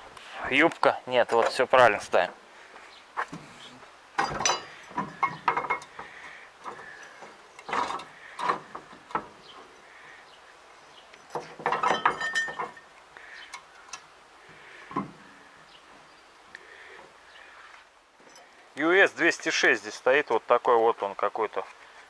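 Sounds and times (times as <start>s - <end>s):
wrench clinking on metal bolts: 4.2s - 6.0s, 11.2s - 12.9s.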